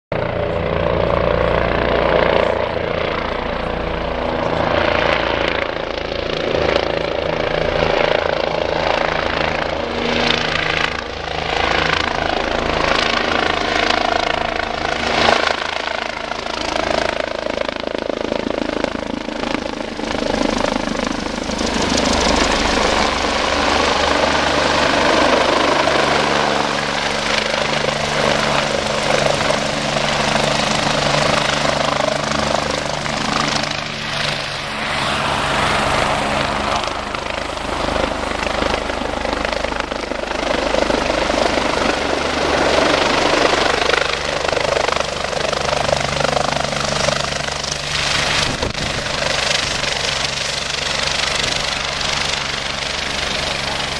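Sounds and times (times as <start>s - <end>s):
helicopter engines and rotors: 0.1s - 53.9s.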